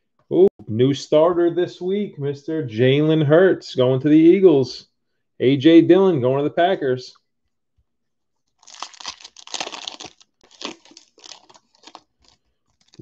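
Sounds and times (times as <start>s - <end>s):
foil wrapper crinkling and tearing: 8.5s - 13.0s.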